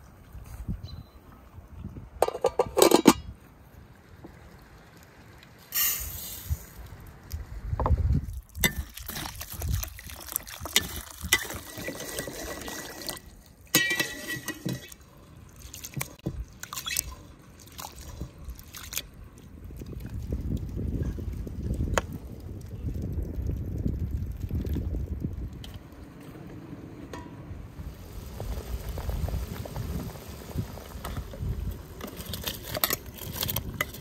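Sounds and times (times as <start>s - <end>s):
water sloshing in a bowl: 8.3s - 20.3s.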